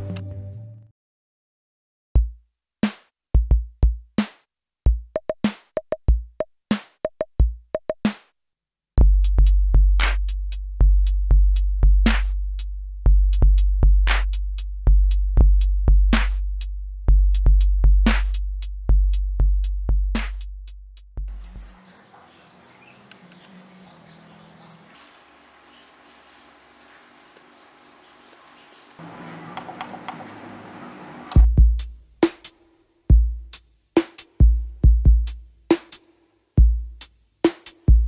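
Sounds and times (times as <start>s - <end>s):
deep bass drum: 3.4s - 4.1s, 9.0s - 21.4s, 31.4s - 32.0s, 33.1s - 33.5s, 34.4s - 35.4s, 36.6s - 37.0s
drum machine hits: 31.3s - 32.5s, 34.0s - 35.9s.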